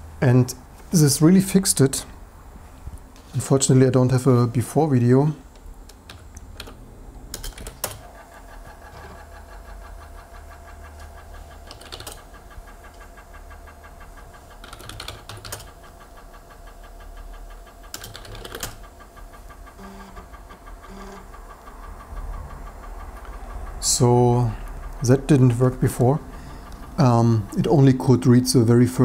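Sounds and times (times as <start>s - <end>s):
floppy drive motor humming: 4.6s - 29.0s
drive head stepper clicking: 7.4s - 28.1s.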